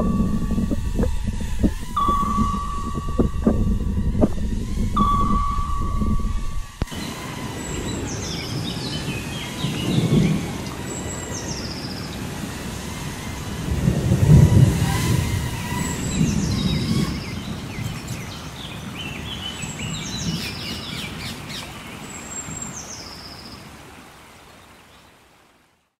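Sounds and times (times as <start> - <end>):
thunder rumbling: 0.0 - 6.9, 13.1 - 17.7
birds calling with falling trill: 0.0 - 12.4, 15.5 - 23.6.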